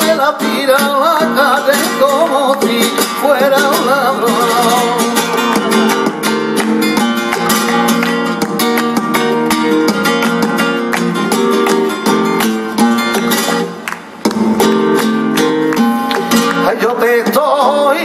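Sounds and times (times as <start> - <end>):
person singing: 0.0 - 6.6
rhythmic hand-clapping: 0.0 - 17.4
flamenco guitar: 0.0 - 18.0.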